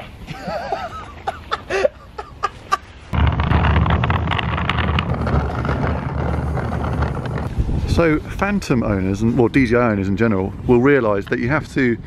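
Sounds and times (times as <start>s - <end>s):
microphone handling noise: 3.1s - 8.4s
wind rumble on microphone: 3.1s - 10.7s.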